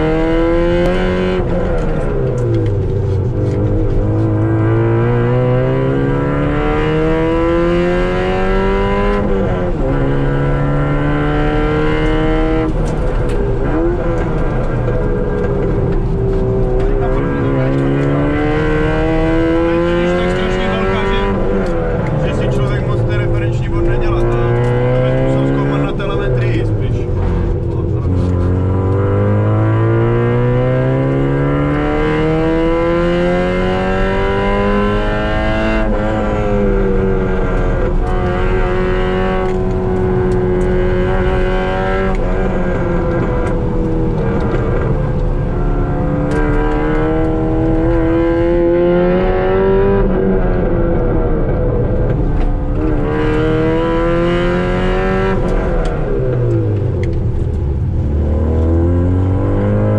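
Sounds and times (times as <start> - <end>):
car engine revving: 0.0 - 59.9.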